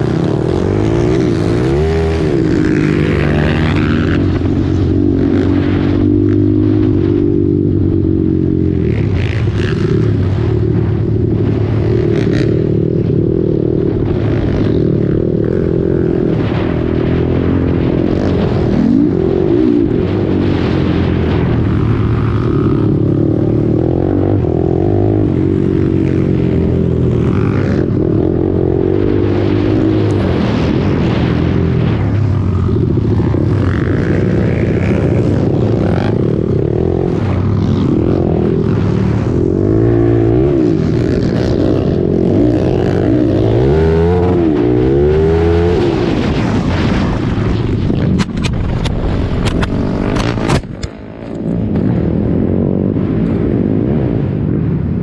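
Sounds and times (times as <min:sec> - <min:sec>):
quad engine revving: 0:33.3 - 0:47.0.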